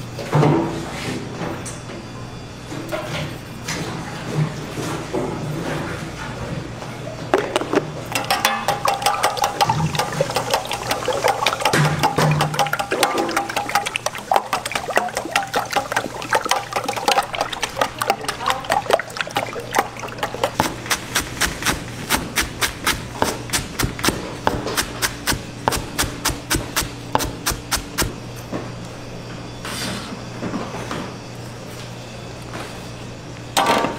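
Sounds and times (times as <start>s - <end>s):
eggs beaten in metal pan: 8.2s - 28.1s
knife chopping on plastic board: 20.6s - 28.1s.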